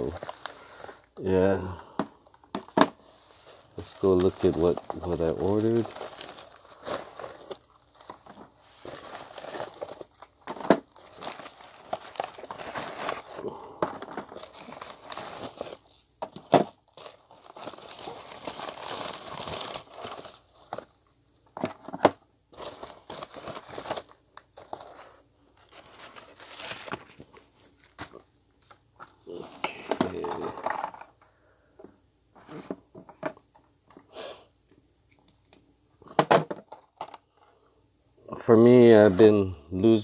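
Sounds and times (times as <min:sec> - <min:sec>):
plastic bag crinkling: 0:02.4 - 0:21.1, 0:21.7 - 0:28.3, 0:29.2 - 0:31.2.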